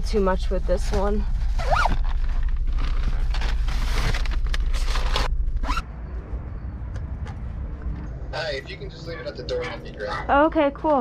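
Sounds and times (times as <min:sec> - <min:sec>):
outdoor ambience: 0:00.0 - 0:11.0
steady low hum: 0:00.0 - 0:11.0
fabric bags rustling and scraping: 0:00.8 - 0:05.8
zipper-like rasp: 0:01.6 - 0:02.2, 0:05.6 - 0:05.8.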